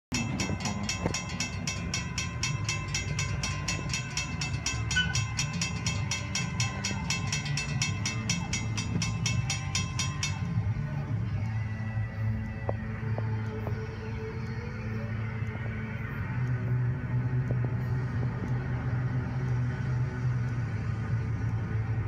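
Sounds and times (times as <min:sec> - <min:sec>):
railroad crossing bell ringing: 0:00.1 - 0:12.5
low rumble: 0:00.1 - 0:22.0.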